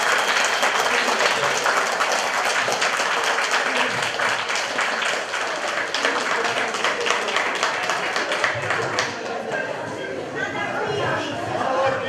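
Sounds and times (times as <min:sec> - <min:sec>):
guests applauding: 0:00.0 - 0:09.5.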